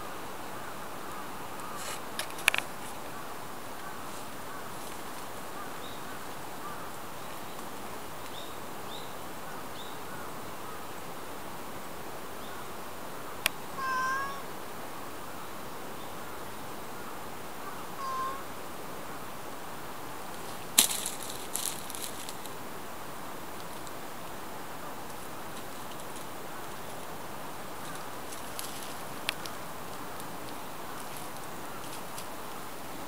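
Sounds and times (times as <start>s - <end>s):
steady hiss: 0.0s - 33.0s
cat meowing: 13.8s - 14.5s, 18.0s - 18.5s.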